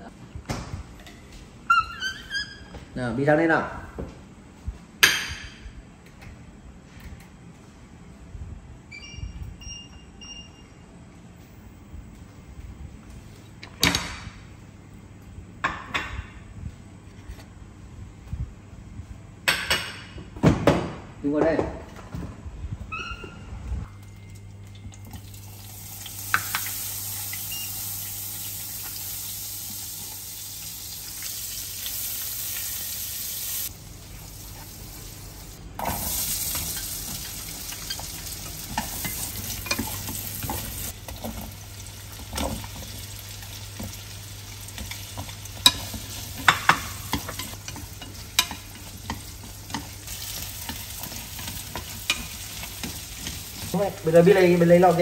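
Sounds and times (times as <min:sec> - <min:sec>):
vegetables sizzling in hot oil: 0:25.2 - 0:55.0
chopsticks tapping a pan: 0:44.7 - 0:53.8.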